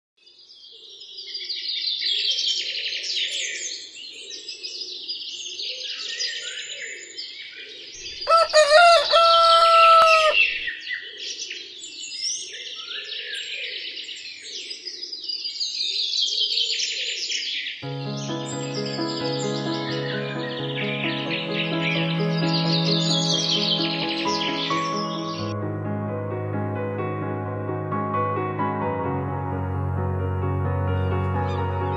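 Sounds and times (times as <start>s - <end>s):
small birds chirping: 7.7s - 25.5s
rooster crowing: 8.2s - 10.7s.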